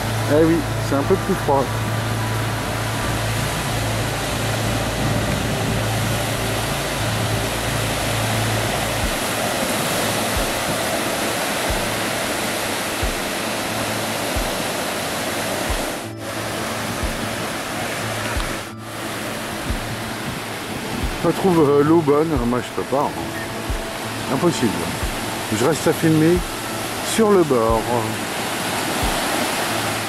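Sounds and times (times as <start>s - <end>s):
low rumble: 0.0s - 14.6s
surf breaking on beach: 0.0s - 30.0s.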